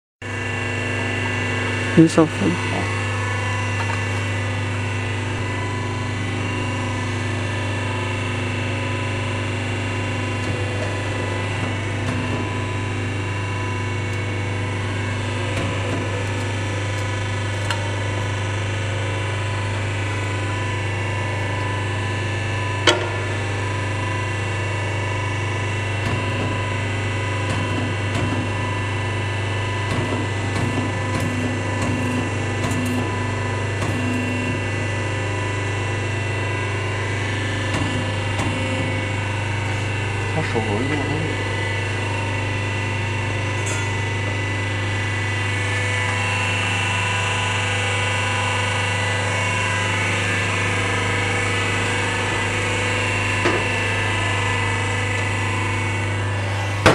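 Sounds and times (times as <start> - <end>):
hydraulic power unit humming: 0.2 - 56.9.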